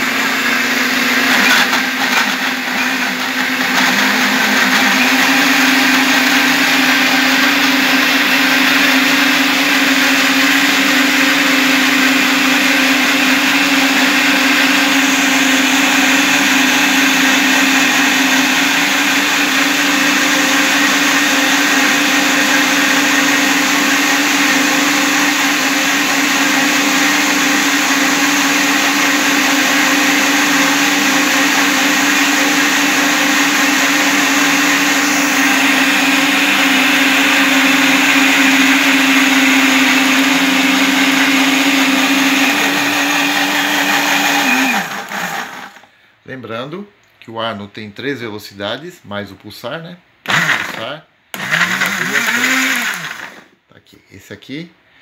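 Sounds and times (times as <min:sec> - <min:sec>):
blender motors whining: 0:00.0 - 0:45.9, 0:50.2 - 0:53.5
blender motors spinning down: 0:29.1 - 0:45.9, 0:51.4 - 0:53.4.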